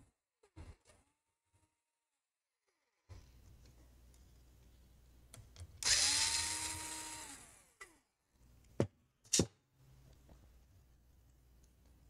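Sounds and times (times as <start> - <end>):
cordless drill whining: 5.8 - 7.7.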